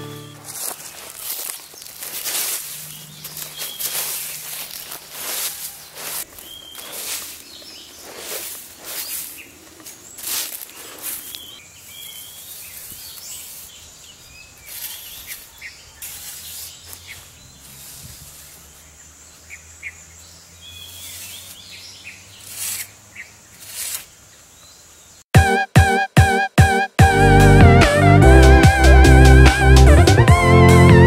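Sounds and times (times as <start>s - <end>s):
footsteps on dry leaves: 0.0s - 19.4s, 20.7s - 24.1s
birds chirping: 0.0s - 25.2s
hand trowel scraping soil: 0.2s - 18.9s, 20.8s - 24.2s.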